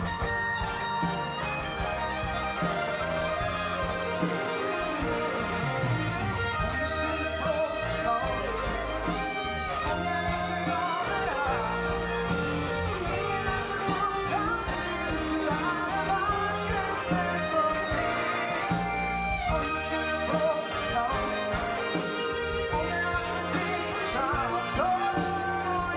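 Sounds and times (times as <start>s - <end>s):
big band playing: 0.0s - 25.9s
guitar: 0.0s - 25.9s
man singing: 6.6s - 12.4s, 13.0s - 25.9s.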